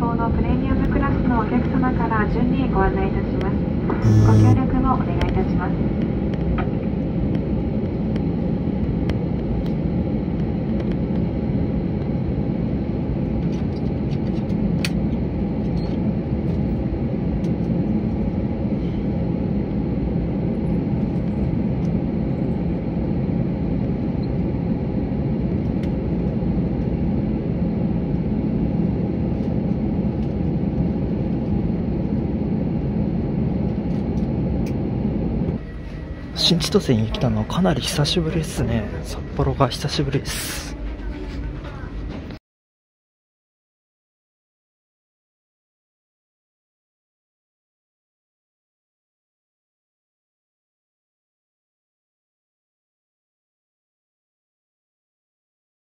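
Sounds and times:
aircraft cabin engine rumble: 0.0s - 42.4s.

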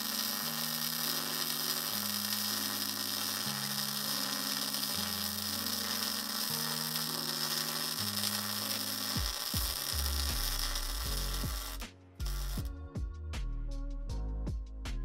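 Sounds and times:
welding arc crackling: 0.0s - 12.7s
electronic music with buzzing bass: 8.2s - 13.1s.

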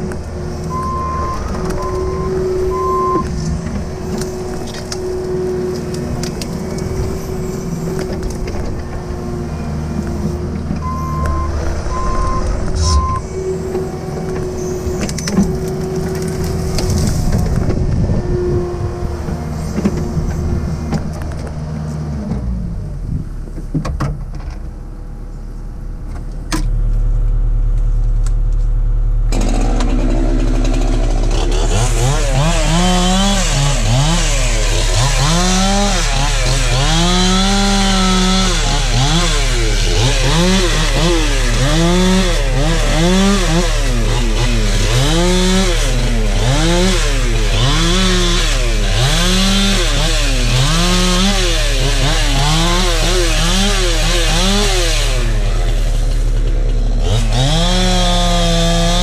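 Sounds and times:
hydraulic whine: 0.0s - 21.5s, 29.2s - 48.9s
low drone: 0.0s - 22.2s
diesel excavator engine: 0.0s - 59.0s
short beeps: 0.7s - 3.3s, 10.8s - 13.4s
branches crackling and snapping: 3.2s - 9.1s, 13.6s - 17.7s.

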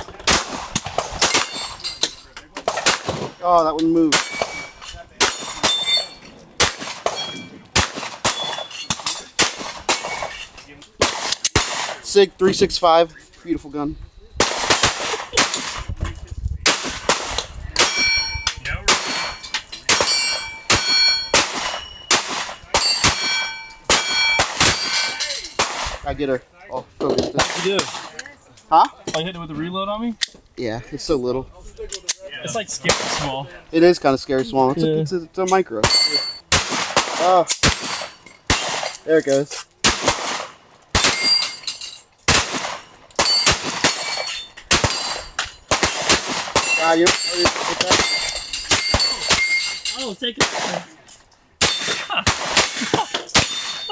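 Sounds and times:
pistol shots: 0.1s - 1.8s, 2.7s - 3.4s, 6.6s - 10.4s, 11.0s - 12.1s, 14.4s - 15.9s, 16.6s - 18.1s, 18.9s - 26.0s, 32.9s - 33.3s, 35.8s - 39.0s, 39.8s - 41.4s, 42.3s - 49.4s, 50.4s - 50.8s, 51.6s - 53.8s
bullet ringing on steel plate: 4.1s - 7.6s, 17.8s - 25.4s, 35.9s - 36.5s, 41.0s - 42.0s, 43.2s - 45.7s, 46.6s - 50.0s, 53.3s - 53.9s.

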